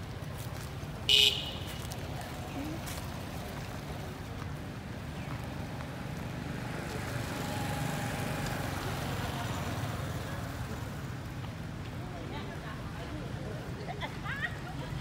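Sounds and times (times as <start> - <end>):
low rumble of road traffic: 0.0 - 15.0.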